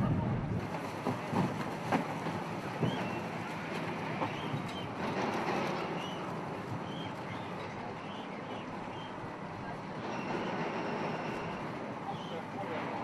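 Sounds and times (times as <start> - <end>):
wind noise on microphone: 0.0 - 3.1.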